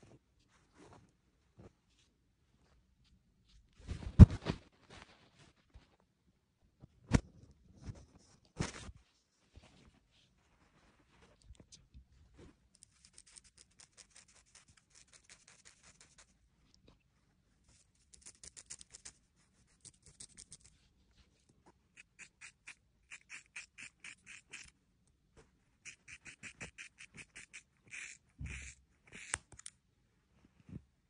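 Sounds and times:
scissors snipping hair: 0:18.1 - 0:19.1, 0:19.8 - 0:20.7, 0:25.9 - 0:29.7.

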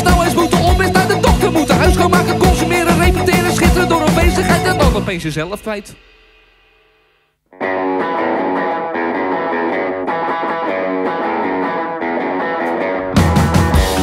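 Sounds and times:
electric guitar riff: 0:00.0 - 0:06.2, 0:07.5 - 0:14.0.

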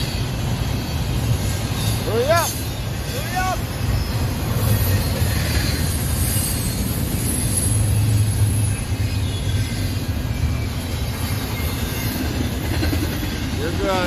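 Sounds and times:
high wheel squeal: 0:00.0 - 0:14.0
train wheels rumbling on rail: 0:00.0 - 0:14.0.

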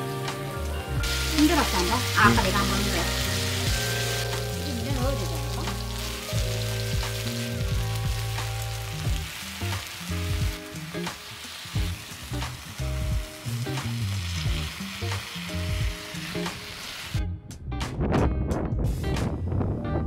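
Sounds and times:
meat sizzling on griddle: 0:00.0 - 0:17.2
soft background music: 0:00.0 - 0:20.0.

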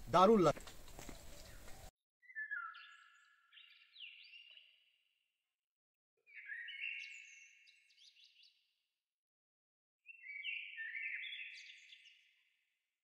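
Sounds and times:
bird chirping: 0:00.6 - 0:05.0, 0:06.2 - 0:08.7, 0:10.0 - 0:12.5.

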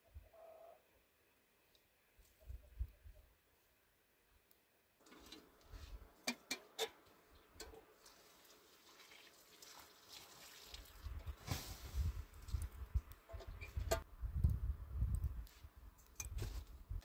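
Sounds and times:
water hissing on embers: 0:07.4 - 0:12.8.

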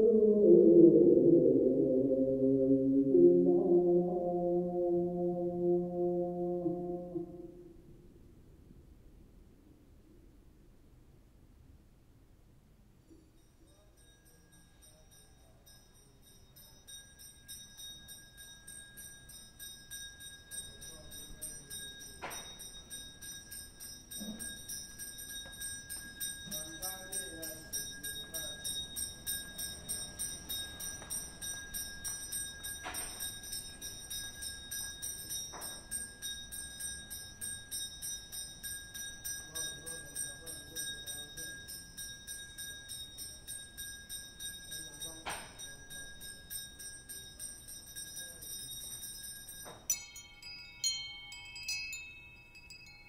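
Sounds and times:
small bells jingling: 0:13.0 - 0:53.0.

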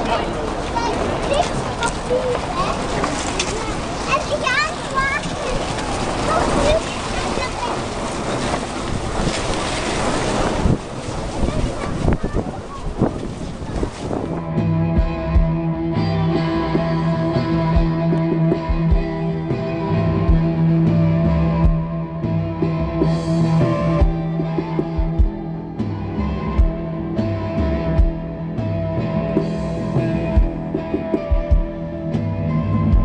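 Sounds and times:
held low note: 0:14.1 - 0:33.0
electric guitar playing: 0:14.2 - 0:33.0
drum hits: 0:14.6 - 0:15.7, 0:20.2 - 0:20.6, 0:21.6 - 0:22.0, 0:23.0 - 0:25.9, 0:26.6 - 0:33.0.

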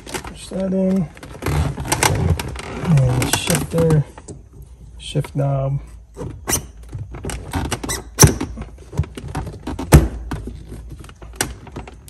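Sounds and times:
plastic trim squeaks and clicks: 0:06.1 - 0:10.8.

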